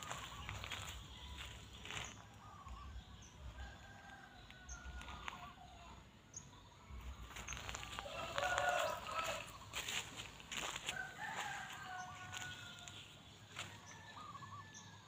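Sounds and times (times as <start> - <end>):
faint rooster call: 7.7 - 15.0
rooster crowing: 7.7 - 15.0.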